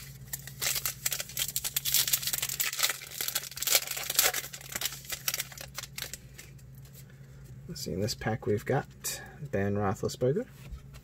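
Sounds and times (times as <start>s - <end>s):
trading cards crinkling: 0.0s - 7.1s.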